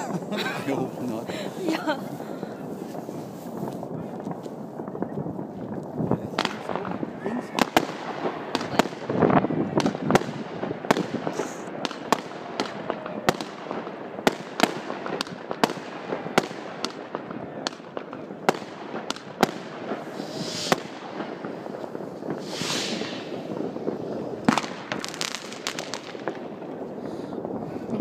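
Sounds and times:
distant fireworks crackling: 0:00.0 - 0:28.0
fireworks bangs: 0:00.0 - 0:28.0
short high hiss: 0:20.1 - 0:20.8, 0:22.4 - 0:23.4.

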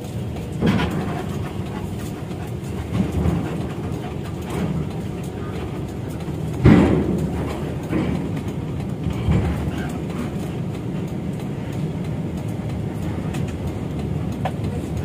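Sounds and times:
low rumble of engines: 0:00.0 - 0:15.0
heavy thump: 0:06.6 - 0:08.4.

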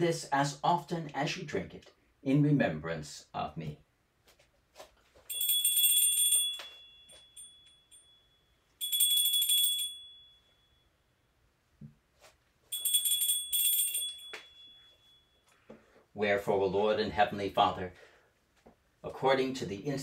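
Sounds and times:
altar bells jingling: 0:05.3 - 0:10.8, 0:12.7 - 0:15.6.

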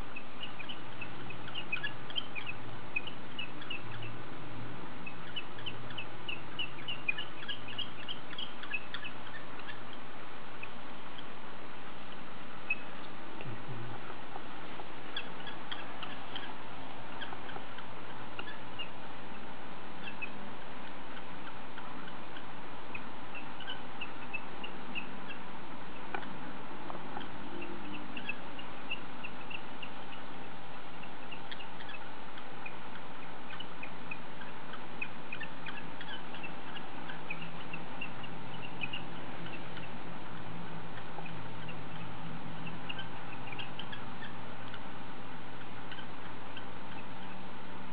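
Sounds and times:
background hiss: 0:00.0 - 0:47.9
faint high chirps: 0:00.0 - 0:47.9
faint hum: 0:00.0 - 0:47.9.

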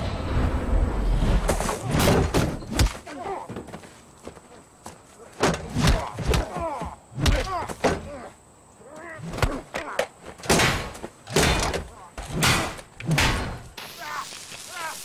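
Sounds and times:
grunts: 0:03.0 - 0:03.6, 0:05.2 - 0:10.1
punch and body impacts: 0:05.3 - 0:08.2, 0:09.0 - 0:13.6.

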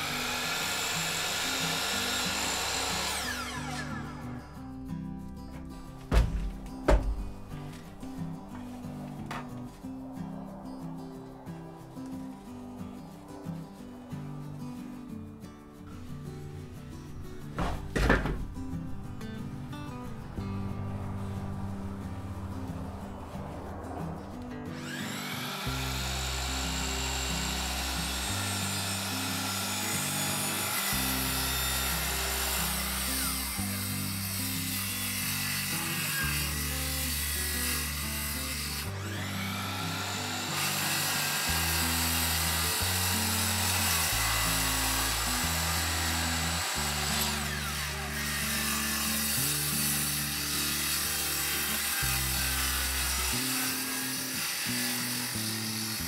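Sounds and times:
power saws cutting: 0:00.0 - 0:04.6, 0:24.6 - 0:56.0.

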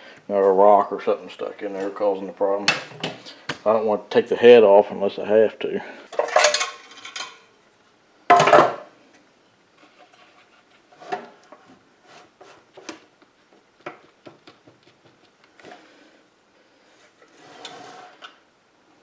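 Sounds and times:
loud scrape: 0:17.3 - 0:18.3.

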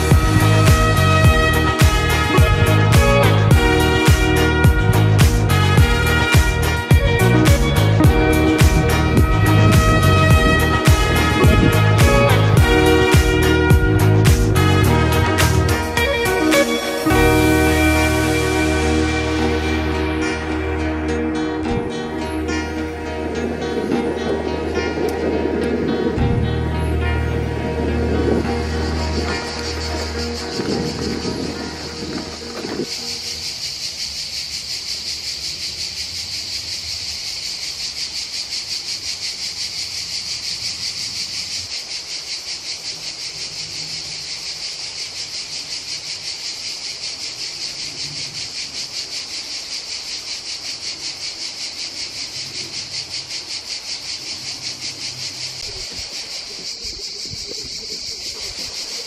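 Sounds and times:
cicadas buzzing chorus: 0:00.0 - 0:59.0.

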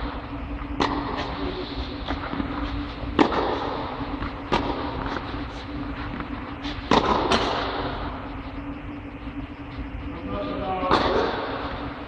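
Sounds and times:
steady low hum: 0:00.0 - 0:12.0
tennis ball struck by rackets: 0:00.8 - 0:01.3, 0:03.1 - 0:05.2, 0:06.9 - 0:07.7.

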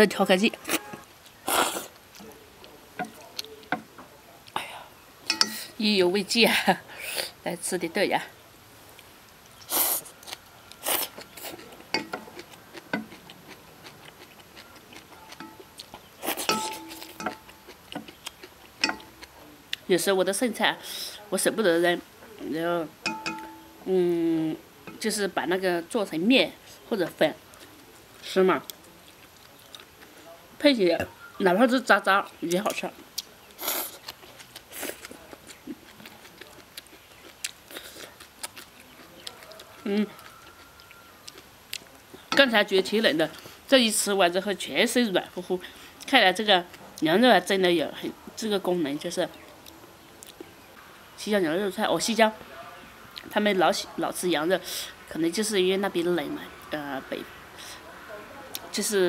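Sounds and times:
chewing with wet clicks: 0:00.7 - 0:04.6, 0:08.9 - 0:19.9, 0:27.4 - 0:27.9, 0:28.6 - 0:30.2, 0:32.3 - 0:42.4, 0:49.4 - 0:50.7, 0:58.5 - 0:58.7
chopsticks clicking on metal bowl: 0:03.0 - 0:03.9, 0:05.3 - 0:05.6, 0:11.9 - 0:13.2, 0:15.2 - 0:15.7, 0:16.4 - 0:18.2, 0:18.8 - 0:19.3, 0:23.0 - 0:23.8.

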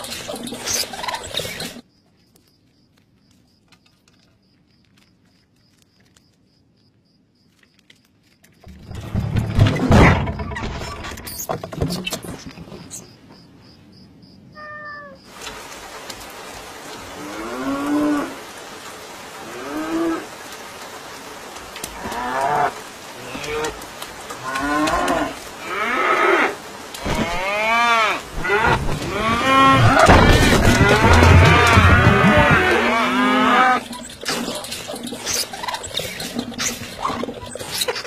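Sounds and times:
animal calling: 0:14.6 - 0:15.3.

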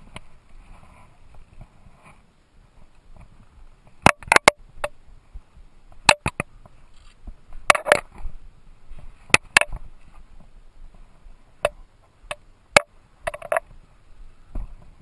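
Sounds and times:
gloves rustling and scraping: 0:00.0 - 0:04.0, 0:06.6 - 0:11.6.

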